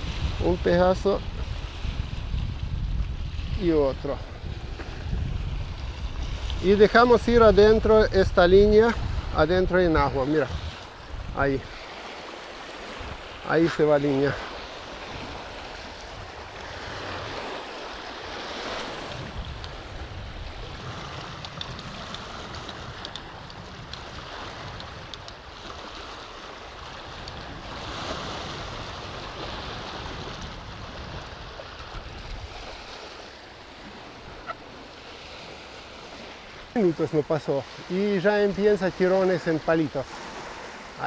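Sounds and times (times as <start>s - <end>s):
river water lapping: 0.0s - 41.0s
wind on microphone: 0.0s - 41.0s.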